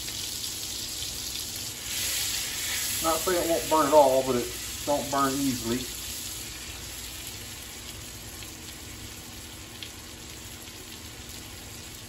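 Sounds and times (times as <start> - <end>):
meat sizzling in butter: 0.0 - 8.9.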